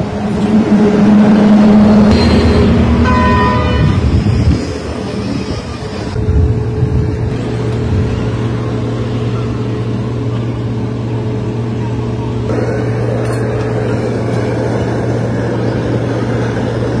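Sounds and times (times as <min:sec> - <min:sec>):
street traffic engines: 0:00.0 - 0:17.0
vehicle horn: 0:02.2 - 0:04.2.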